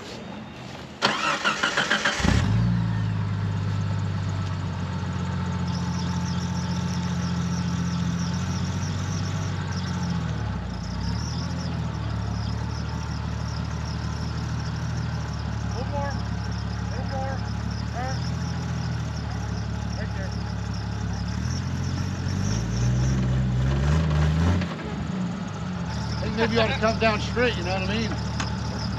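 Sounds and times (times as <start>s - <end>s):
engine running at low speed: 0.2s - 28.9s
engine cranking and starting: 1.0s - 2.9s.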